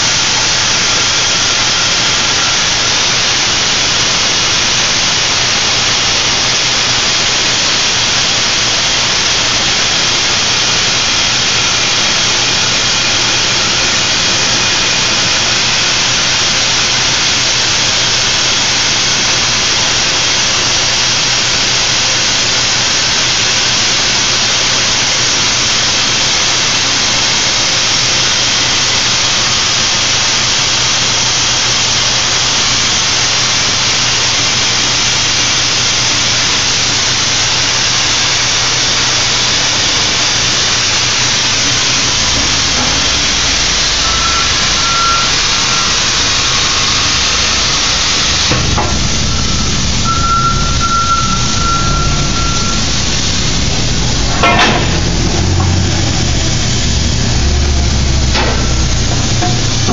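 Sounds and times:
plasma torch hissing: 35.8s - 59.9s
low hum: 41.1s - 59.9s.

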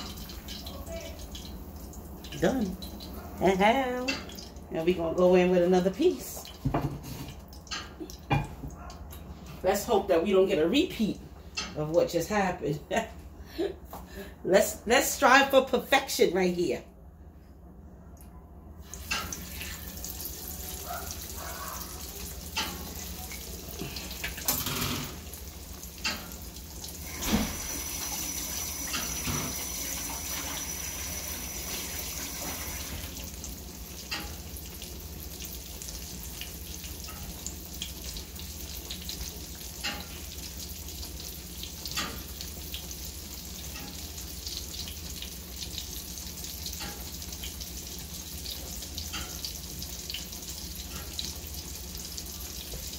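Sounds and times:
fish sizzling in hot oil: 18.9s - 52.9s.

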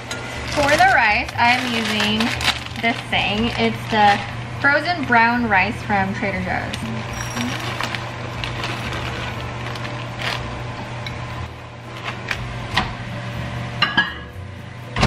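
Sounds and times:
low steady hum: 0.0s - 15.0s
plastic pouch crinkling: 0.5s - 4.8s, 6.6s - 10.6s.

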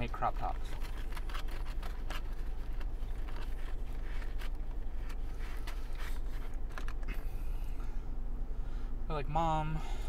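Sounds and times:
clicks and rustles of eating: 0.0s - 7.3s
low rumble in car cabin: 0.0s - 10.0s.

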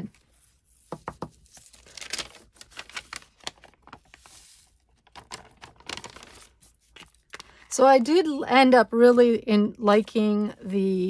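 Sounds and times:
paper rustling: 0.1s - 7.5s.

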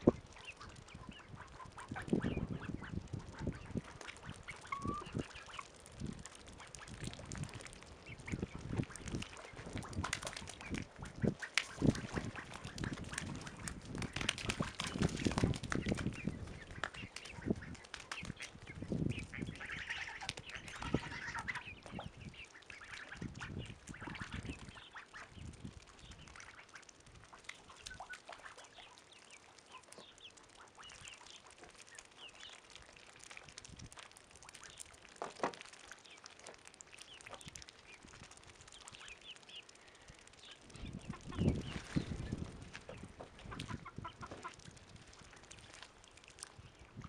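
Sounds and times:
ducks quacking: 0.0s - 5.7s, 8.1s - 15.2s, 15.8s - 29.0s, 40.4s - 42.2s, 42.9s - 44.6s
young geese calling: 0.0s - 5.7s, 8.0s - 15.1s, 15.8s - 32.6s, 38.8s - 44.6s
goose flapping wings: 0.0s - 22.0s, 40.7s - 45.9s.

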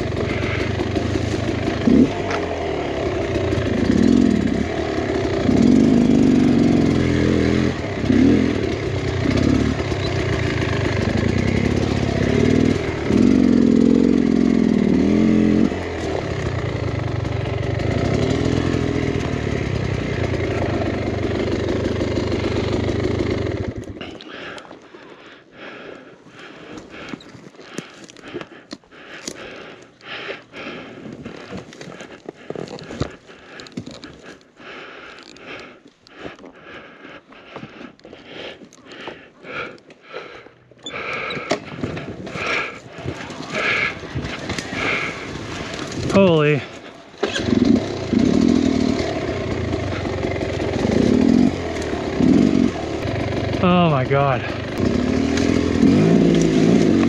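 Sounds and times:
dirt bike engine revving: 0.0s - 24.1s, 40.8s - 57.0s.

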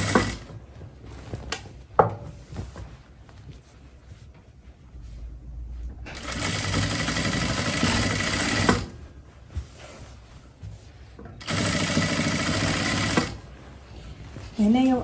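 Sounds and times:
sewing machine stitching: 0.0s - 0.5s, 6.1s - 9.0s, 11.4s - 13.5s.

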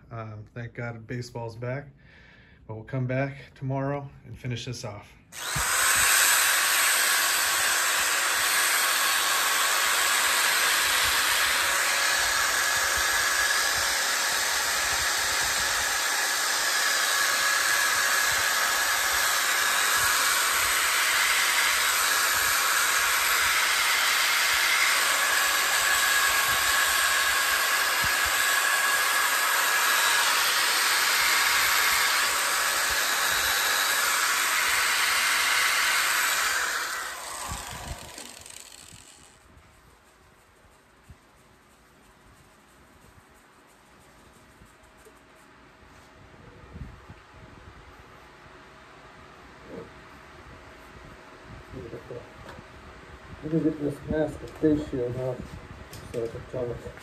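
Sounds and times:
power drill motor whine: 5.3s - 39.5s
sanding pad hissing on wood: 5.4s - 39.4s.

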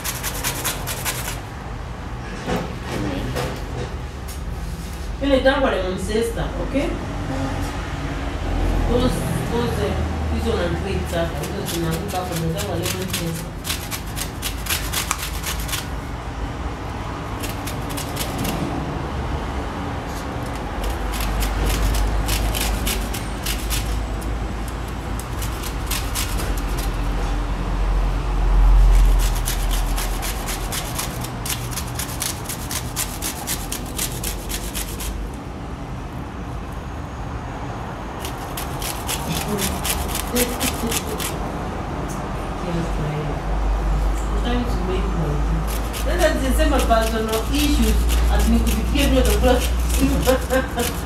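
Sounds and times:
lemon scraping on metal grater: 0.0s - 1.4s, 11.1s - 16.0s, 17.4s - 18.7s, 20.4s - 27.2s, 28.8s - 35.2s, 38.2s - 41.4s, 45.6s - 51.0s.

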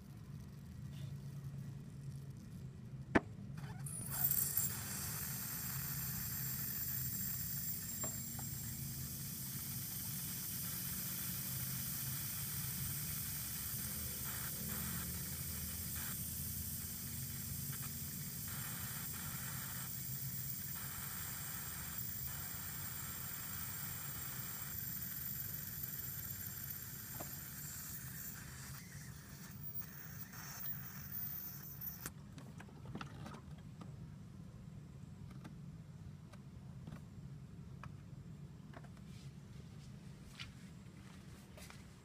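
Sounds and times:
air hissing from bleed screw: 3.9s - 32.1s.

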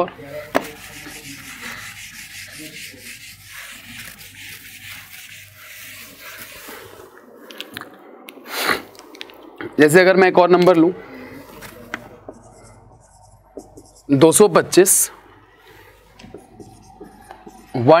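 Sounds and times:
eraser scrubbing whiteboard: 0.2s - 7.1s, 11.4s - 18.0s
eraser knocking on board: 0.5s - 1.2s.

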